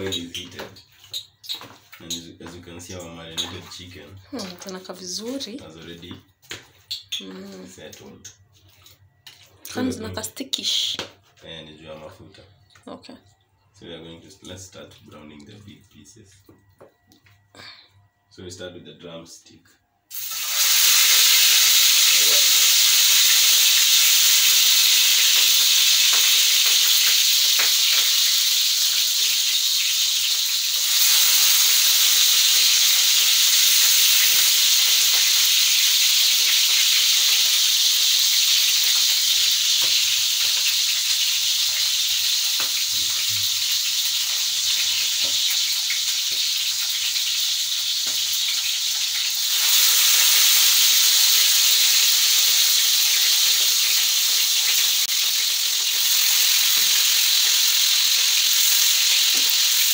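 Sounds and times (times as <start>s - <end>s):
chicken sizzling in oil: 0.0s - 9.7s, 20.1s - 59.9s.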